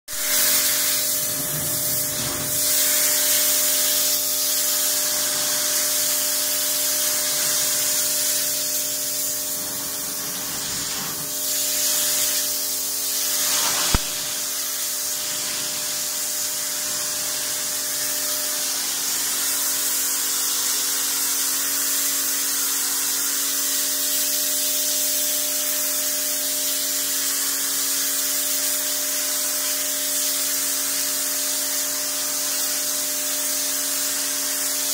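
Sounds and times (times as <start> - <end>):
pressure washer jet hissing: 0.1 - 24.4
sharp click: 13.9 - 14.3.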